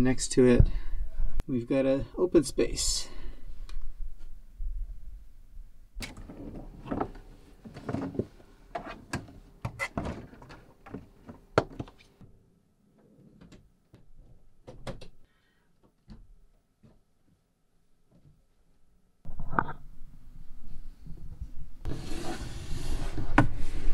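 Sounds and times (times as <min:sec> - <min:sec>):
wooden door clicks and thuds: 0:14.2 - 0:15.2.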